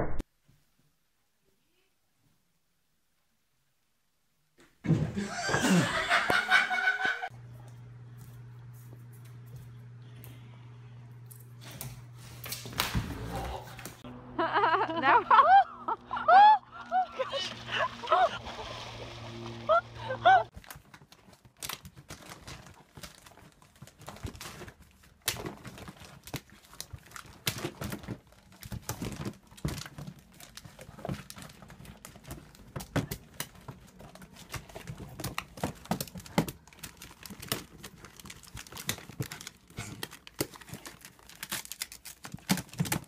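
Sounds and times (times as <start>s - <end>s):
plastic rustling and crinkling: 17.1s - 43.0s.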